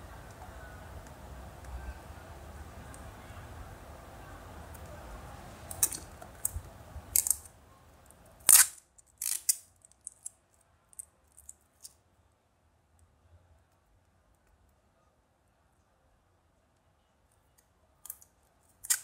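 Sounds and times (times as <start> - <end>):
plastic capsule snapping: 5.7 - 6.6, 8.4 - 10.3.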